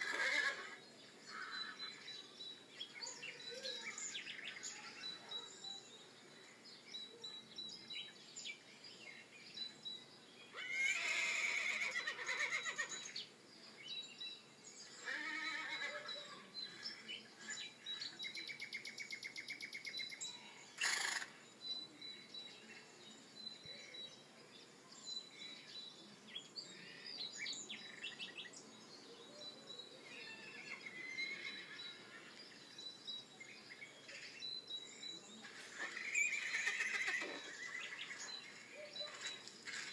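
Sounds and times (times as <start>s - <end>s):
horse neighing: 0.0s - 1.8s, 10.6s - 13.0s, 15.0s - 16.2s, 35.9s - 38.1s
birds chirping: 0.0s - 39.9s.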